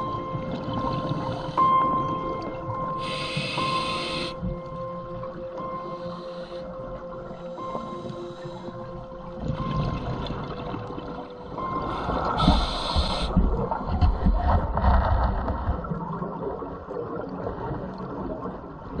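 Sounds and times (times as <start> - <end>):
underwater rumbling: 7.0 - 19.0.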